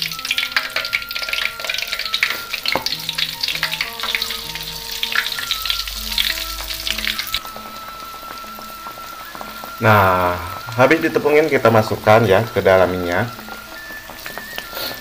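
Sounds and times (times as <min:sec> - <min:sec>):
egg deep-frying in oil: 0:00.0 - 0:15.0.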